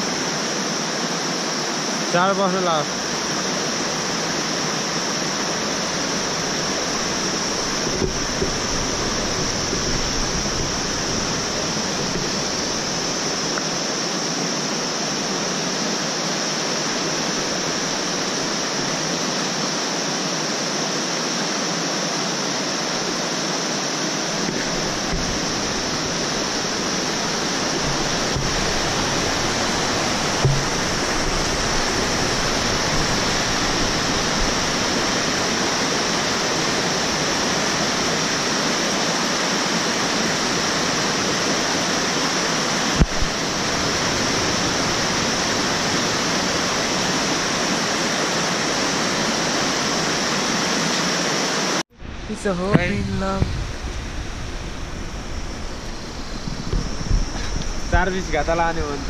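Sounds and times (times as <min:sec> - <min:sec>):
river rushing over rocks: 0:00.0 - 0:59.0
soft knock: 0:30.4 - 0:30.8.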